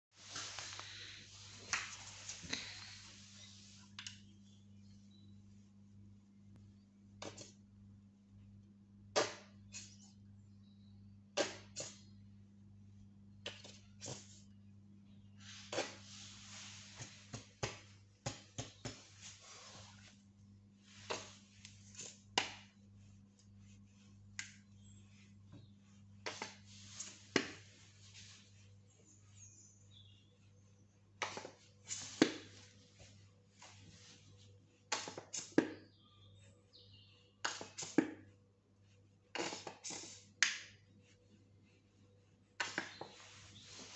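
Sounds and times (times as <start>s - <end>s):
hands rustling paper towels: 0.1s - 3.9s, 15.4s - 35.2s, 40.8s - 43.9s
low steady hum: 0.2s - 34.9s.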